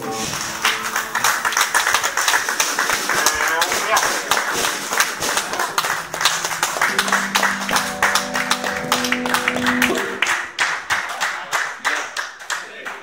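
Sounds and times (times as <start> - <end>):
audience clapping: 0.0 - 13.0
held instrument chord: 0.6 - 2.0, 5.4 - 11.0.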